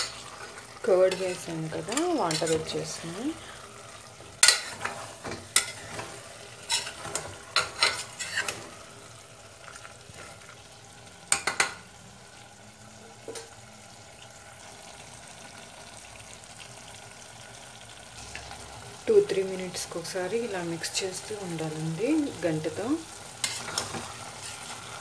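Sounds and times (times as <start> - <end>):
spoon scraping a pot: 0.0 - 3.6, 4.4 - 8.7, 23.4 - 25.0
curry sizzling in a pot: 0.0 - 25.0.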